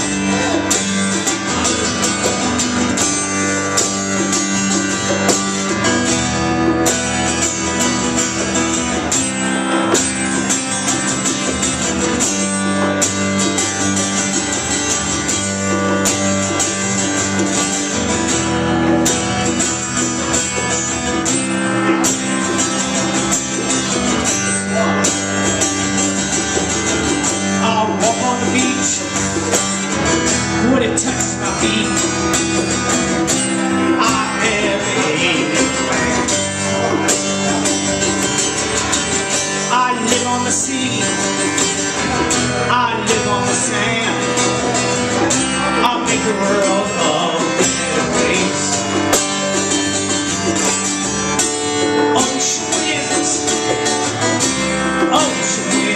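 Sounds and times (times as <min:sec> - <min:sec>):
acoustic guitar strumming: 0:00.0 - 0:55.9
man singing: 0:27.4 - 0:29.6, 0:30.3 - 0:38.1, 0:39.4 - 0:49.6, 0:51.9 - 0:54.0, 0:54.9 - 0:55.9.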